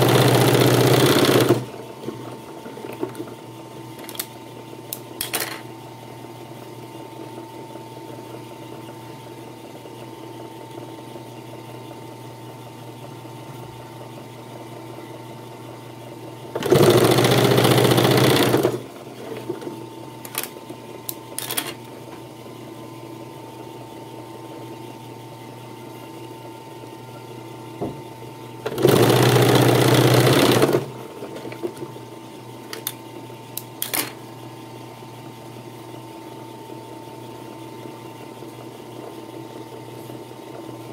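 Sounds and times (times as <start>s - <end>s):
sewing machine motor humming: 0.0s - 1.7s, 16.6s - 19.0s, 28.6s - 31.0s
sewing machine stitching: 0.0s - 1.7s, 16.6s - 19.4s, 28.6s - 31.5s.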